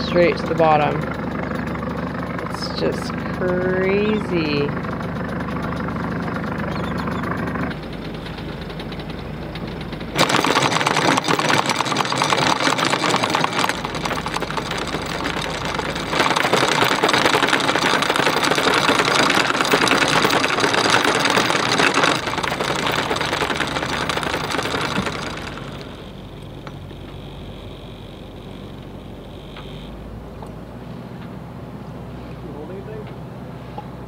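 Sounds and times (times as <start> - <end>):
anchor chain rattling: 0.0 - 29.9
boat engine running low: 0.0 - 34.0.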